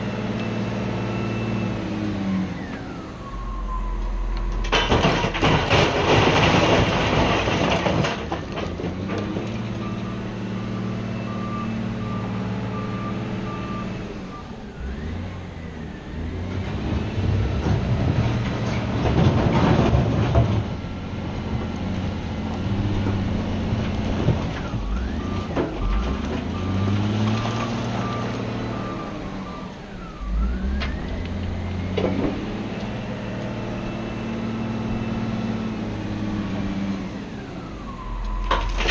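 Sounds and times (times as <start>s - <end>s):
diesel engine revving: 0.0s - 38.9s
reversing alarm beeping: 0.4s - 4.7s, 9.7s - 16.1s, 27.8s - 32.5s, 37.3s - 38.8s
stones crashing down: 4.6s - 9.6s, 38.4s - 38.9s.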